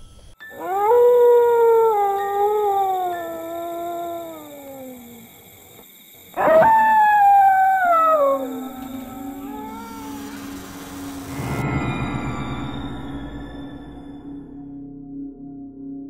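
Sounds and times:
dog howling: 0.5s - 5.4s, 6.4s - 11.3s
low steady drone: 7.4s - 16.0s.

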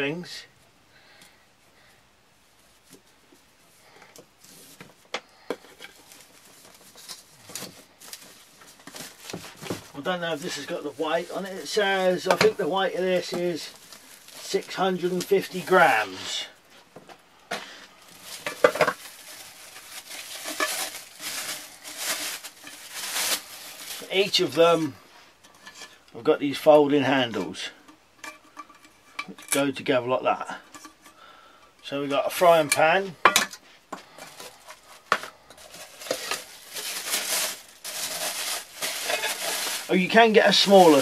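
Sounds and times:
plastic wrapping rustling: 2.5s - 26.0s, 33.9s - 41.0s
plastic bag crinkling: 3.8s - 16.3s, 18.0s - 24.6s, 34.0s - 41.0s.

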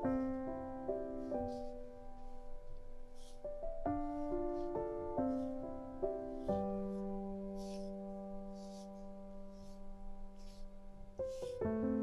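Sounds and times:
gentle piano music: 0.0s - 12.0s.

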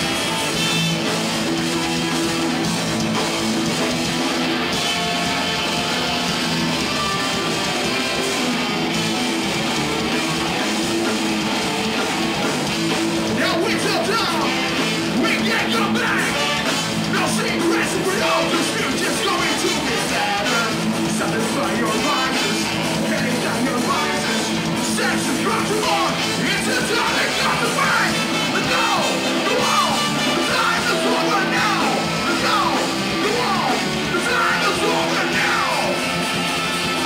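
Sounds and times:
live ska-punk band playing: 0.0s - 37.0s
person singing: 13.3s - 36.2s.

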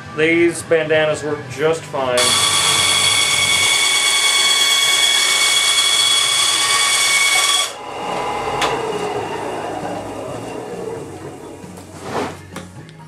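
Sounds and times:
bandsaw cutting with ringing whine: 2.2s - 11.9s
bandsaw running: 2.2s - 12.4s.

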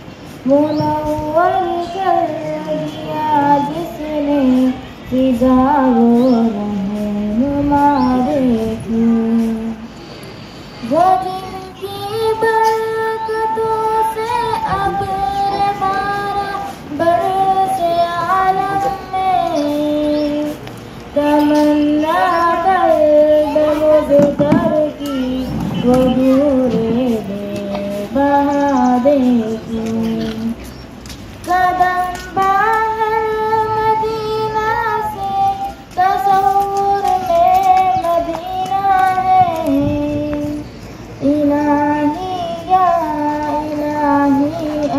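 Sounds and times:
girl singing into microphone: 0.0s - 10.0s, 10.8s - 30.7s, 31.4s - 44.9s.

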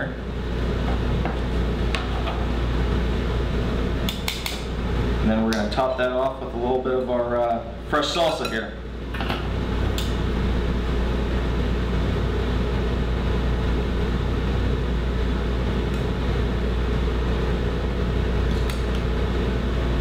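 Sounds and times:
low hum with rushing noise: 0.0s - 20.0s.

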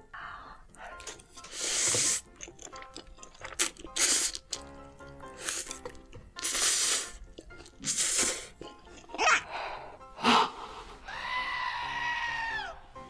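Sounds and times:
light background music: 0.0s - 13.0s
person slurping noodles: 1.0s - 9.2s
person gasping: 9.4s - 11.4s.

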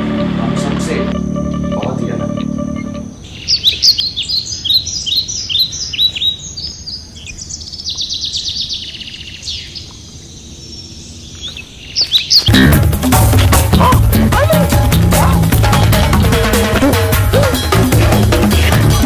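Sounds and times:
loud music: 0.0s - 3.2s, 12.5s - 19.0s
birds chirping: 0.0s - 19.0s.

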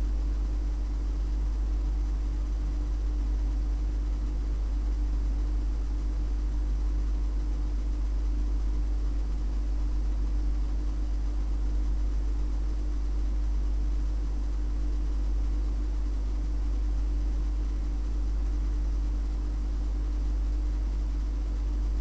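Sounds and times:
low rumbling hum: 21.8s - 22.0s.

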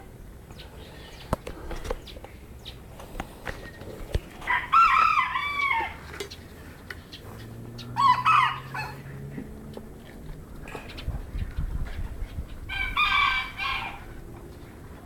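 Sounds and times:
rooster crowing: 4.4s - 6.1s, 7.9s - 9.1s, 12.7s - 14.2s.

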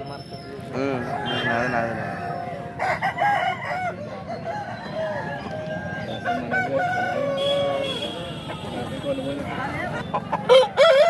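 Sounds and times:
roosters crowing: 0.8s - 8.2s, 10.1s - 11.0s
chickens clucking: 8.4s - 11.0s.

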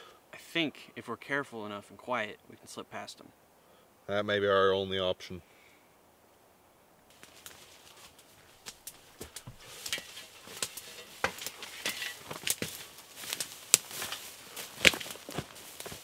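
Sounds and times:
footsteps crackling through brush: 7.1s - 16.0s.

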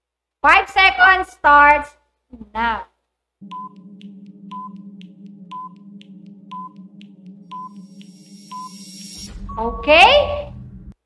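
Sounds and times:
high thin tone: 3.4s - 10.4s
timer tick and beep: 3.4s - 10.4s
low hum: 3.4s - 11.0s.

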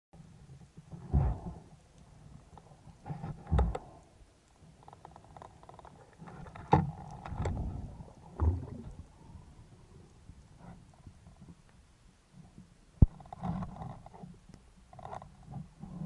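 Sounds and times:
muffled underwater knocks: 6.7s - 9.1s.

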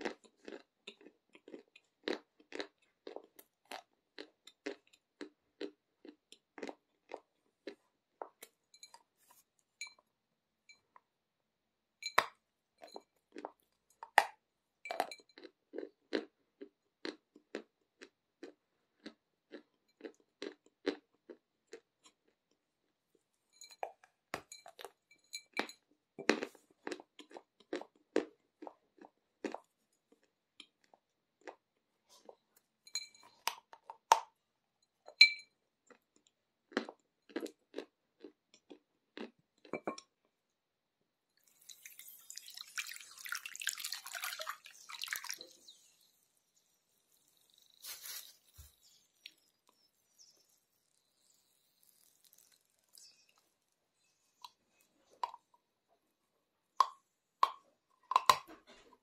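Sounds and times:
chewing chalk crunching: 0.0s - 8.5s, 14.9s - 22.6s, 35.9s - 39.7s, 47.1s - 55.4s.

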